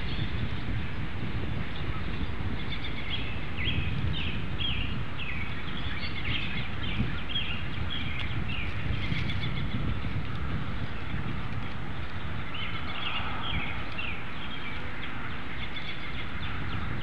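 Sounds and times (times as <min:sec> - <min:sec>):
bird chirping: 0:00.0 - 0:01.0, 0:01.6 - 0:17.0
low outdoor rumble: 0:00.0 - 0:17.0.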